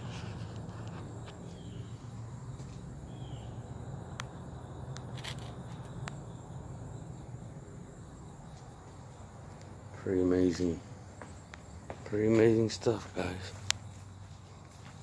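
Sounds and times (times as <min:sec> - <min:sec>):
low steady rumble: 0:00.0 - 0:11.9.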